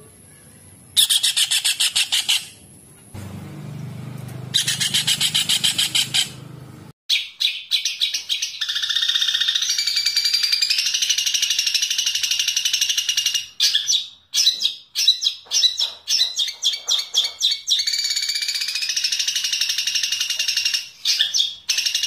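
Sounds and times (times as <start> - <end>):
songbird chirps: 0.0 - 22.0
songbird high trill: 4.5 - 6.4.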